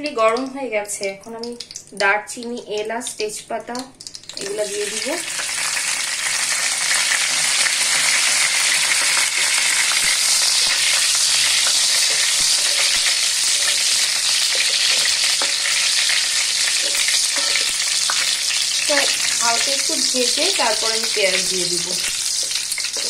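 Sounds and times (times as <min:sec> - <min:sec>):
spices sizzling in hot oil: 0:00.0 - 0:23.0
wooden spatula tapping and scraping: 0:22.3 - 0:23.0.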